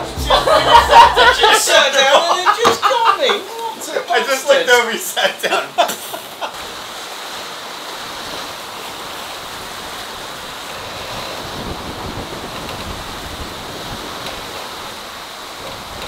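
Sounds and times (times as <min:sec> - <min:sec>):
breaking seas rushing: 0:00.0 - 0:16.0
strong wind: 0:06.6 - 0:16.0
wind buffeting microphone: 0:08.0 - 0:16.0.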